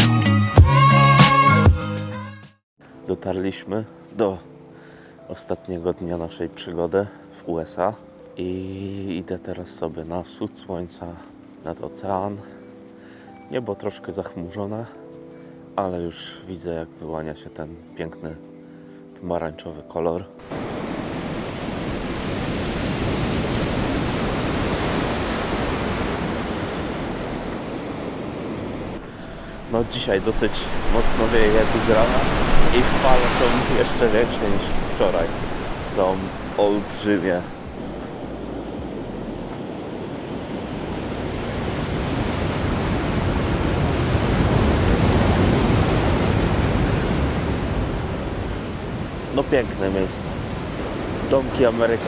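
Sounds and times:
waves breaking on beach: 20.4s - 52.0s
wind buffeting microphone: 20.5s - 49.3s.

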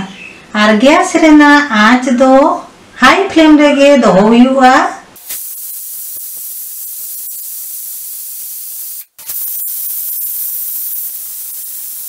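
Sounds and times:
pressure cooker hissing steam: 5.2s - 12.0s.

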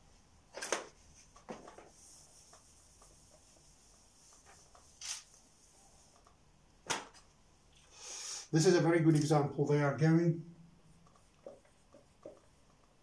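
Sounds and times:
marker scratching on whiteboard: 1.1s - 6.3s.

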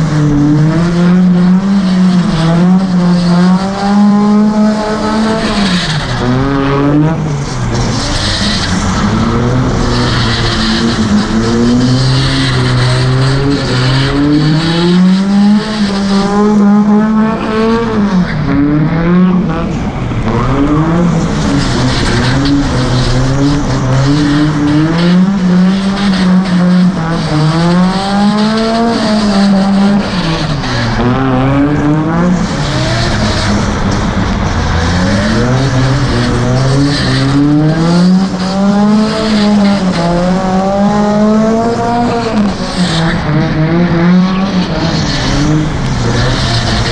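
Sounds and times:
car engine revving: 0.0s - 46.9s
tyres sliding on wet track: 6.9s - 18.3s.

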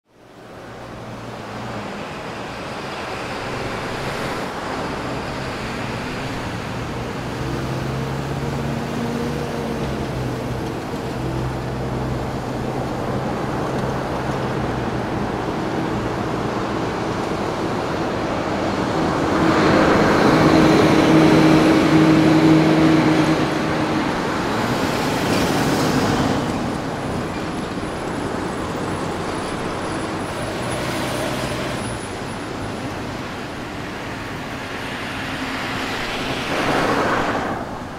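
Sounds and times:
city street traffic: 0.0s - 37.9s.

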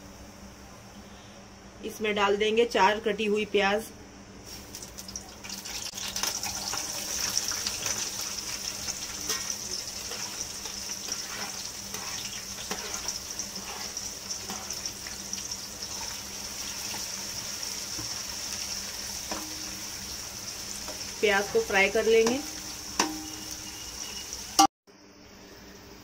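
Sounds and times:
onions sizzling in hot oil: 4.4s - 24.7s
oil crackling: 4.6s - 19.1s.

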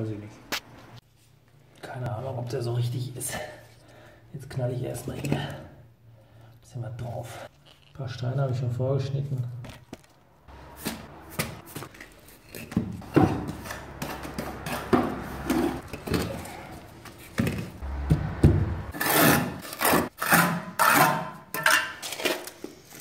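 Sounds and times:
trowel scraping adhesive: 18.9s - 22.6s.

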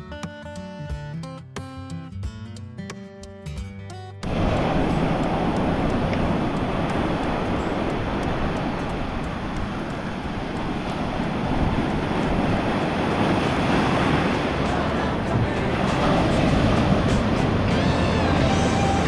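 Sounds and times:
wind buffeting microphone: 4.2s - 17.7s
surf breaking on sand: 4.2s - 19.0s.

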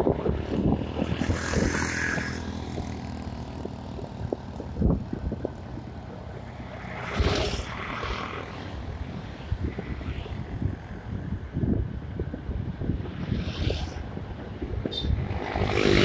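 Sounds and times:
moving vehicle rumble: 0.0s - 16.0s
wind buffeting microphone: 0.0s - 16.0s.

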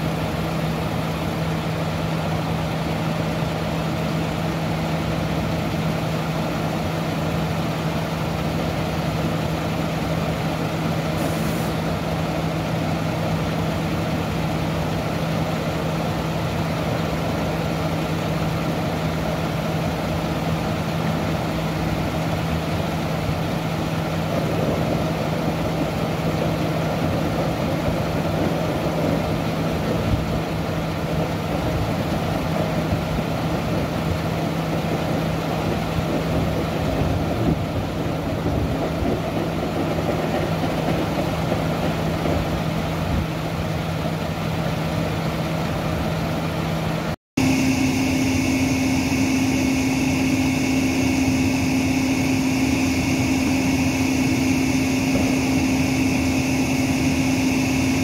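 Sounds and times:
diesel engine idling: 0.0s - 58.0s
short hiss: 11.2s - 11.8s.

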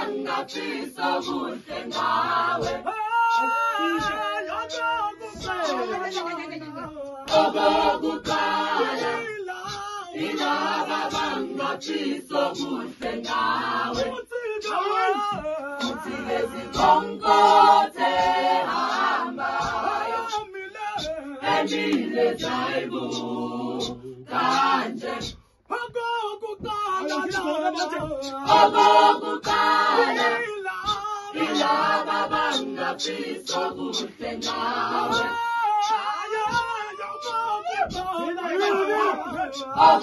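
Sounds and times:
choir singing a cappella: 0.0s - 25.7s, 26.6s - 40.0s.

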